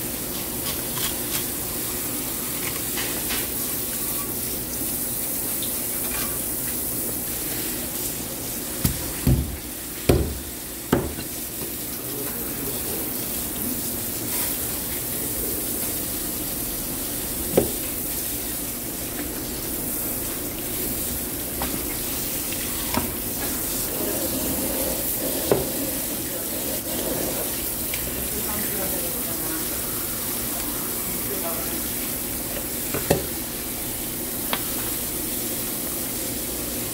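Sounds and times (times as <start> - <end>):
hose water spraying: 9.0 - 33.1
sharp knocks on cutting board: 10.1 - 11.2.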